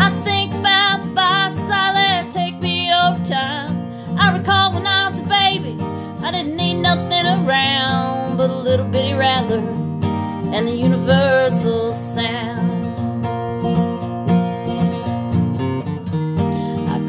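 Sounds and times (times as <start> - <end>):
woman singing: 0.0 - 13.1, 16.6 - 17.0
strummed acoustic guitar: 0.0 - 17.0.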